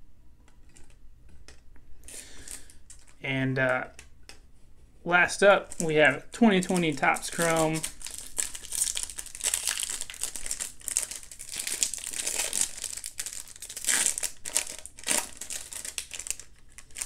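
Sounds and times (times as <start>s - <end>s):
foil wrapper crinkling and tearing: 2.3s - 3.2s, 5.6s - 17.0s.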